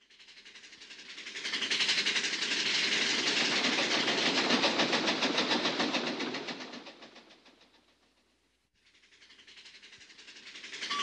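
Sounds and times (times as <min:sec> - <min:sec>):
train clickety-clack on track: 0:00.0 - 0:11.0.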